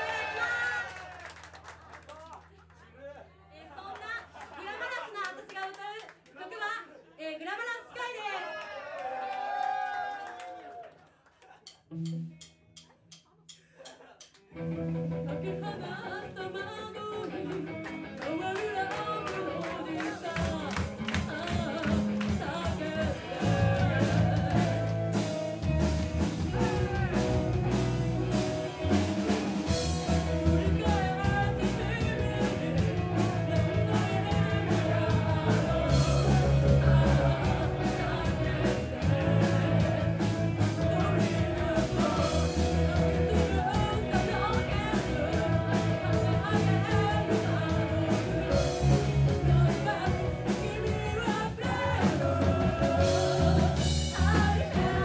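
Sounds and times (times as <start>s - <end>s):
live rock band playing: 11.9s - 12.8s, 14.5s - 55.0s
woman singing: 15.3s - 25.0s, 29.8s - 55.0s.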